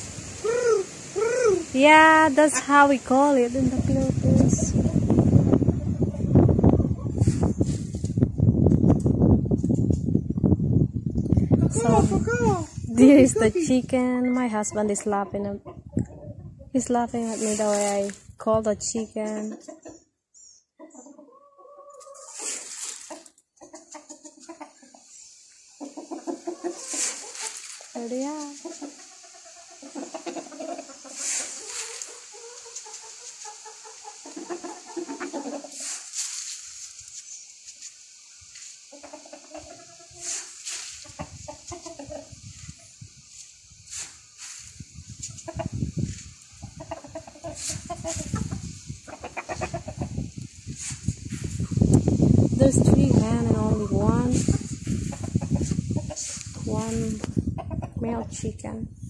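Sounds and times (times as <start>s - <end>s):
chickens clucking: 0.3s - 7.7s, 13.0s - 17.9s, 19.3s - 52.2s, 52.9s - 58.2s
rustling: 17.2s - 18.3s, 22.0s - 23.3s, 26.6s - 29.0s, 30.0s - 34.3s, 35.4s - 38.9s, 40.1s - 41.2s, 41.8s - 45.4s, 50.7s - 51.7s.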